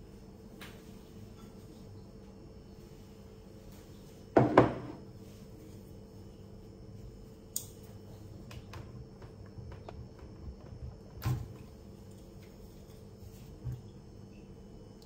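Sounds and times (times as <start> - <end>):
ceramic bowl knocking on countertop: 4.4 - 5.0.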